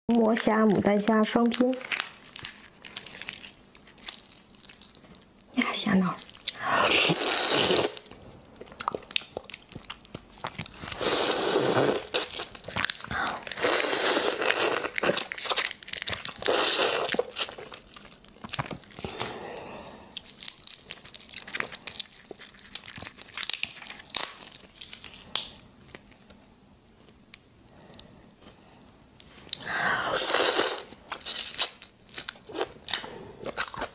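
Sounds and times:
shrimp shells cracking: 1.3 - 5.5, 14.3 - 19.2, 20.2 - 26.3.

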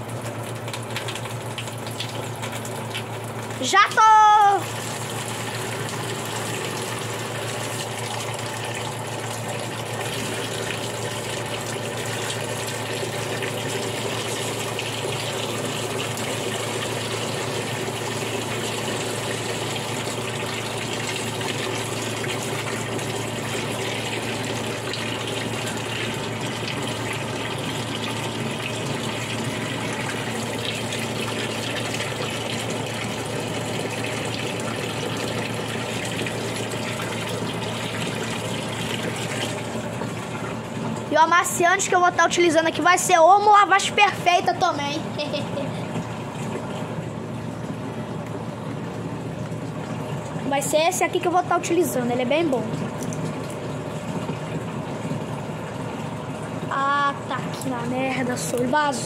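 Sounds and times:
water pouring into plastic tub: 0.0 - 3.6, 4.4 - 41.2, 52.5 - 56.6
washing machine low hum: 0.0 - 59.0.

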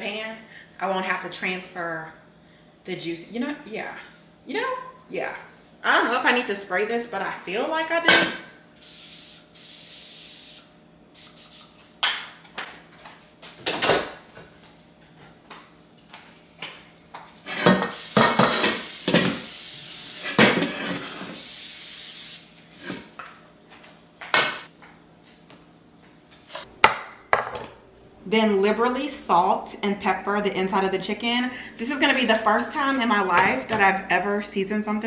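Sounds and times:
cooking spray hissing: 8.8 - 11.8, 17.6 - 23.1.

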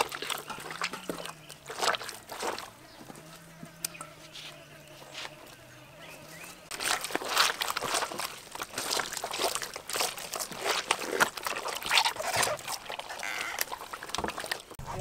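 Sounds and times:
wet squelching and sloshing: 0.0 - 3.5, 6.6 - 15.0.

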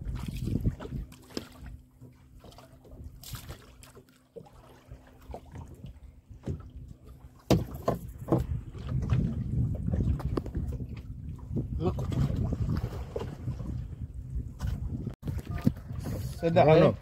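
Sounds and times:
water lapping at boat hull: 0.0 - 17.0
fish thumping in boat: 7.3 - 10.6.

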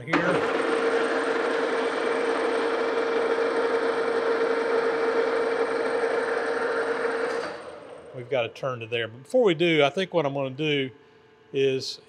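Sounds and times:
metal lathe running: 0.0 - 8.3.

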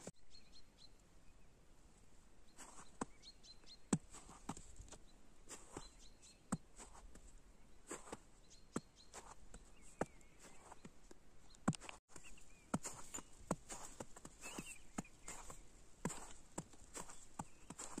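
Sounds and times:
faint bird chirps: 0.2 - 1.6, 2.4 - 18.0
footsteps crunching in snow: 2.6 - 3.2, 3.9 - 8.3, 9.0 - 10.9, 11.7 - 18.0.

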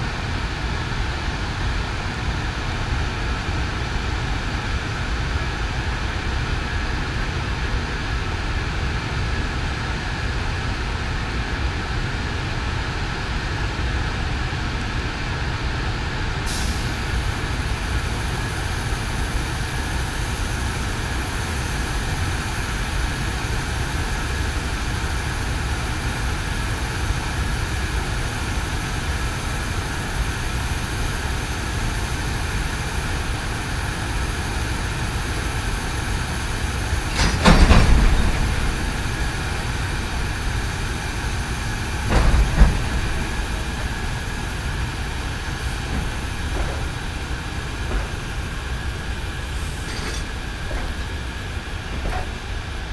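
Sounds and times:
locomotive low hum: 0.0 - 52.9
high hiss: 28.3 - 52.9
steady whine: 35.1 - 52.9.

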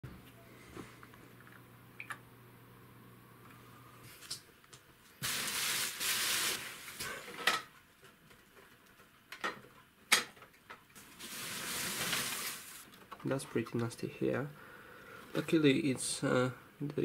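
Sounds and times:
paper packing and box rustling: 11.1 - 12.9.

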